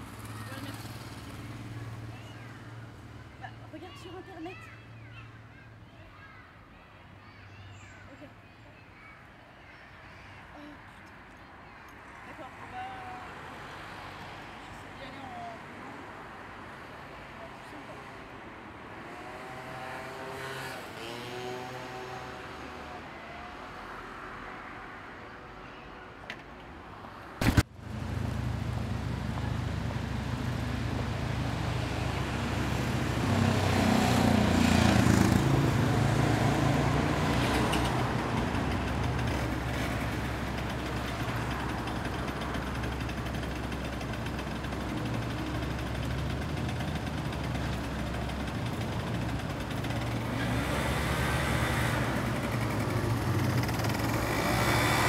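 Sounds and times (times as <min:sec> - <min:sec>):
faint street sound: 0:00.0 - 0:55.0
car passing: 0:12.1 - 0:25.8, 0:26.9 - 0:55.0
motor scooter engine drone: 0:19.0 - 0:23.8, 0:27.4 - 0:55.0.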